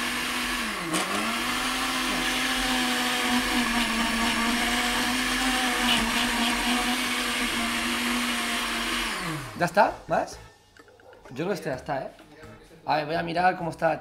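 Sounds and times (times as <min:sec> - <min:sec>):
blender motor running: 0:00.0 - 0:10.0.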